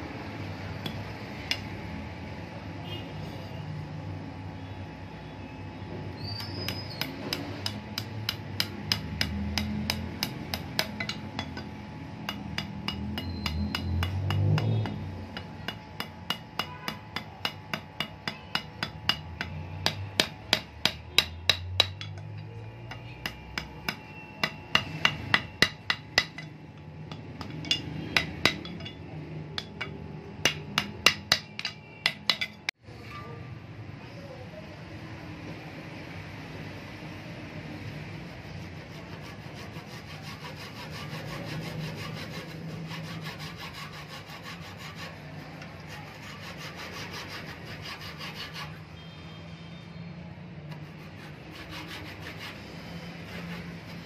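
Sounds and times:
hammer tapping on metal: 0:00.8 - 0:01.8, 0:06.3 - 0:32.8.

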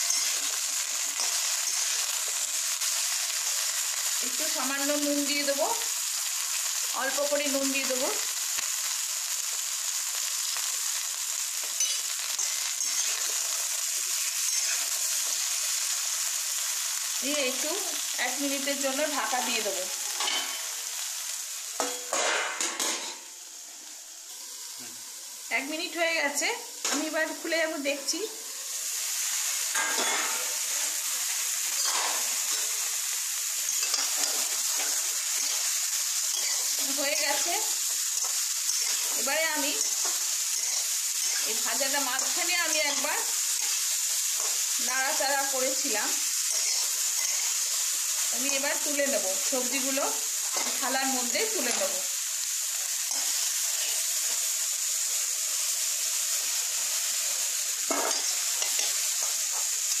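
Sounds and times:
vegetables sizzling in oil: 0:00.0 - 1:00.0
spatula stirring and scraping: 0:11.8 - 0:13.4, 0:14.2 - 0:15.4, 0:33.6 - 0:35.7, 0:36.3 - 0:44.7, 0:46.3 - 0:48.8.

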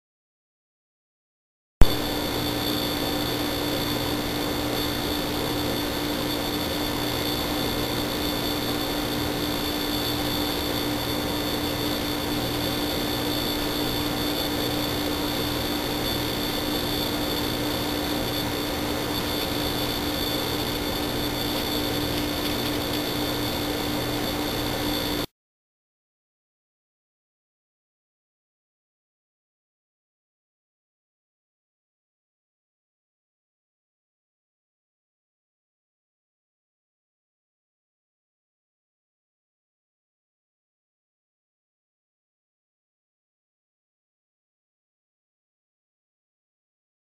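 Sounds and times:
high whine: 0:01.8 - 0:25.3
low hum: 0:01.8 - 0:25.3.

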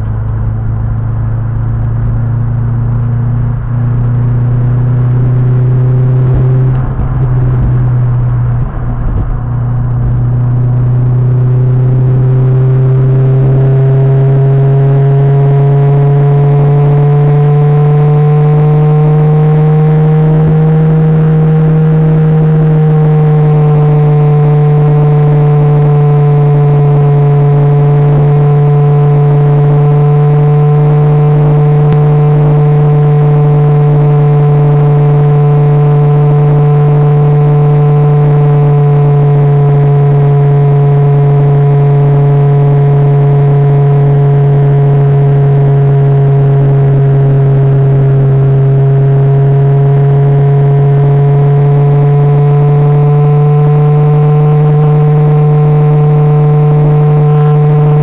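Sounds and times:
car engine droning: 0:00.0 - 0:58.0
low bumps: 0:00.0 - 0:58.0
road and wind noise: 0:00.0 - 0:58.0.

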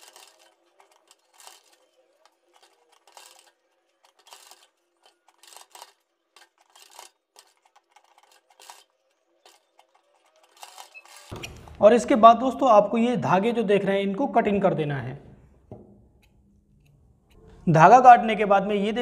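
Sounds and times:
fabric and cord rustling: 0:00.0 - 0:11.8.

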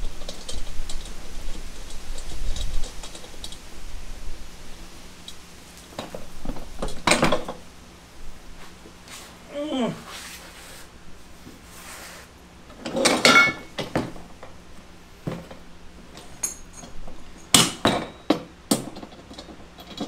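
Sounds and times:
hand tool clinking on metal: 0:13.0 - 0:13.7, 0:16.2 - 0:18.4.

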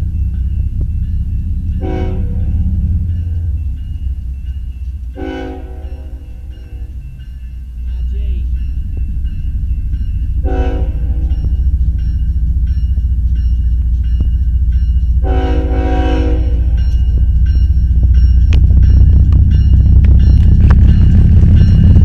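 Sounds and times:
crossing bell ringing: 0:00.0 - 0:22.0
locomotive engine rumble: 0:00.0 - 0:22.0
locomotive horn blasts: 0:01.8 - 0:02.8, 0:05.2 - 0:06.4, 0:10.4 - 0:11.3, 0:15.2 - 0:16.8.

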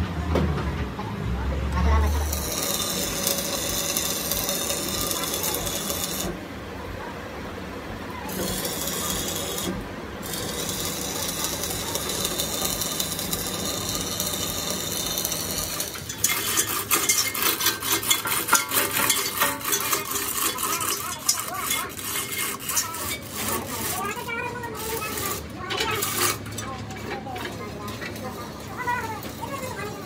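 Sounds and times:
arc welding sizzling hiss: 0:01.8 - 0:06.4, 0:08.0 - 0:26.6
dense crackling with rapid clicks: 0:01.8 - 0:06.4, 0:08.3 - 0:29.9.

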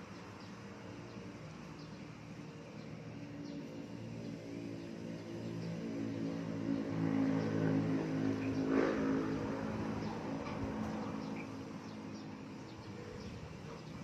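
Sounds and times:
vehicle engine passing: 0:03.0 - 0:14.0.

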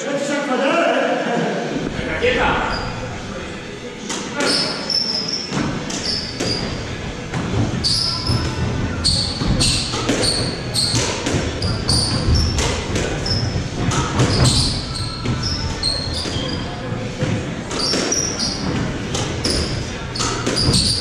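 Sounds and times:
shoes squeaking on wooden floor: 0:04.2 - 0:21.0
squash ball knocking off rackets and walls: 0:17.2 - 0:21.0.

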